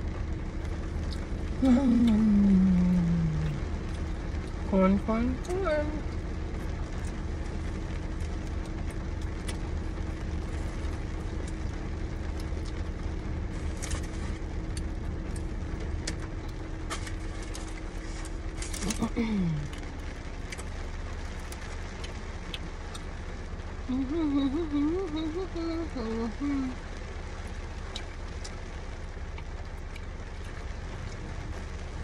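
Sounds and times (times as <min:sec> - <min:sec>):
low hum in car cabin: 0:00.0 - 0:32.0
person humming: 0:01.6 - 0:03.6, 0:18.8 - 0:19.8, 0:23.9 - 0:26.8
paper wrapping crinkling: 0:16.8 - 0:19.2.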